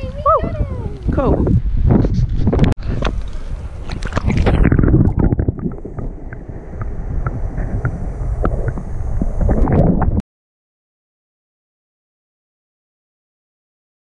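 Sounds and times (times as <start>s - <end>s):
muffled underwater rumble: 0.0s - 10.2s
small underwater clicks and knocks: 2.0s - 10.1s
water splashing: 2.9s - 10.2s.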